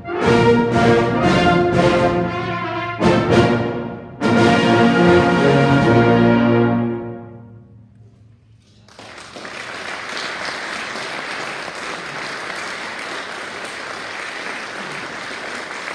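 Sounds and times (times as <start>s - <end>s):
brass band holding a chord: 0.0s - 7.6s
audience applause: 8.8s - 15.9s.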